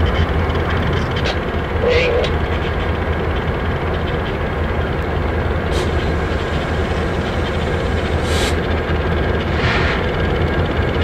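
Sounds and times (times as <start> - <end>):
diesel locomotive engine rumble: 0.0 - 11.0
short hisses: 9.5 - 10.2.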